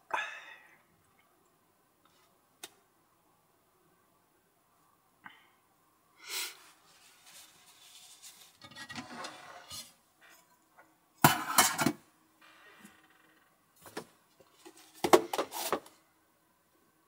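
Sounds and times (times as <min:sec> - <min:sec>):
rustling: 0:06.6 - 0:10.5
dishes clattering in metal sink: 0:11.2 - 0:12.0.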